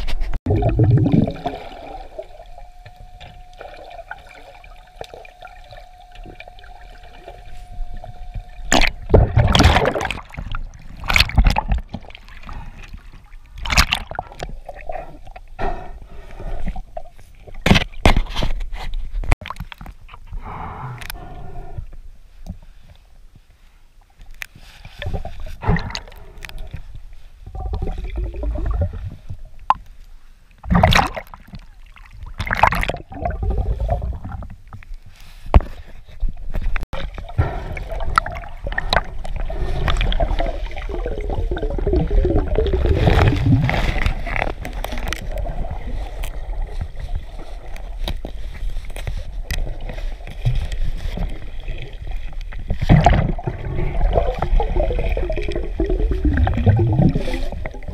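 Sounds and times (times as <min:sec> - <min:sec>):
water sloshing and gurgling: 0:00.0 - 0:20.4, 0:24.0 - 0:57.9
bubbles rising: 0:00.5 - 0:11.9, 0:27.5 - 0:29.1, 0:32.4 - 0:34.4, 0:37.0 - 0:44.1, 0:52.9 - 0:57.9.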